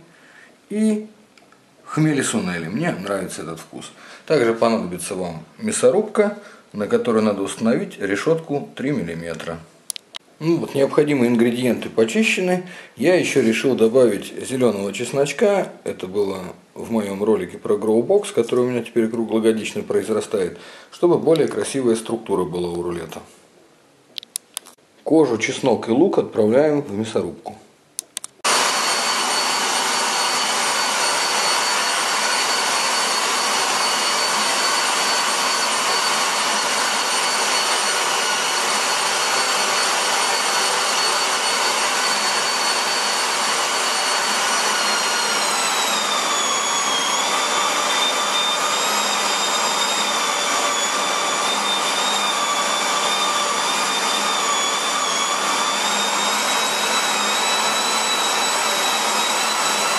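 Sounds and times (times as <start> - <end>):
electric meat grinder motor whine: 28.4 - 59.9.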